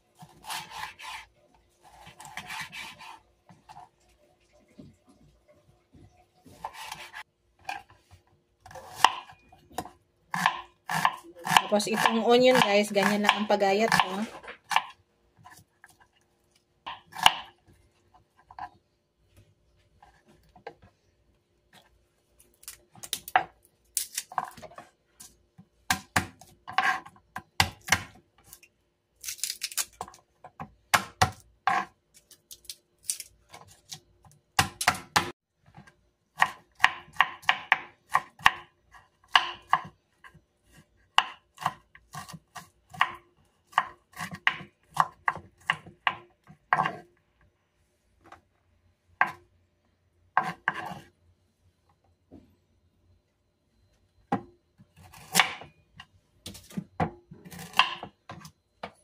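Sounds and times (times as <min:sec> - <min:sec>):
knife chopping on wooden board: 0:08.7 - 0:14.9.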